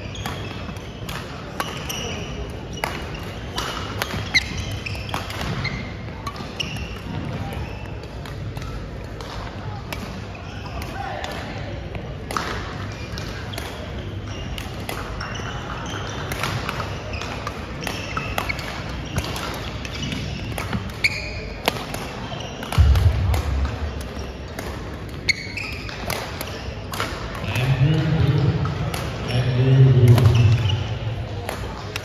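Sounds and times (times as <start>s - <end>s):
sneaker squeaks on floor: 0.0s - 8.5s, 10.2s - 10.8s, 12.7s - 26.9s, 28.2s - 31.2s
racket hitting shuttlecock: 0.2s - 11.4s, 15.9s - 27.4s, 31.4s - 32.0s
background chatter: 26.7s - 32.0s.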